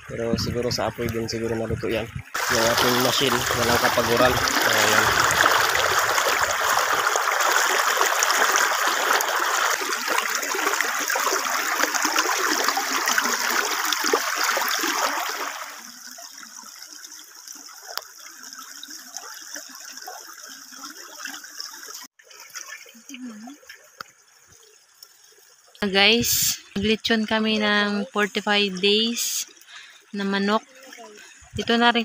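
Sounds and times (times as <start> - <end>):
flowing water trickle: 0.0 - 32.0
river water splashing: 2.3 - 24.1.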